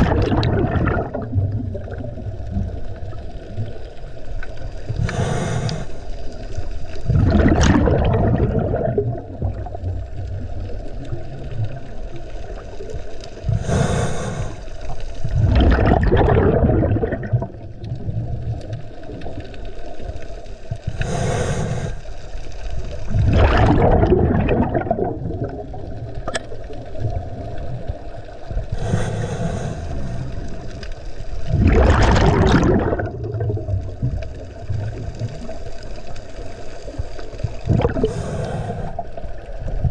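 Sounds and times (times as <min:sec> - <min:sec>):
bubbling exhale underwater: 0:00.0 - 0:03.8, 0:07.0 - 0:14.6, 0:15.2 - 0:19.4, 0:22.8 - 0:35.8, 0:36.6 - 0:39.9
regulator inhalation hiss: 0:05.0 - 0:06.1, 0:13.5 - 0:14.8, 0:20.9 - 0:22.2, 0:28.8 - 0:30.5, 0:38.0 - 0:39.2.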